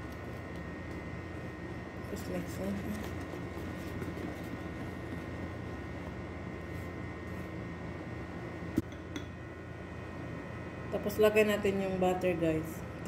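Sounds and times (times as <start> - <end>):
faint steady hum: 0.0 - 13.0
whisk scratching in plastic bowl: 2.2 - 5.8.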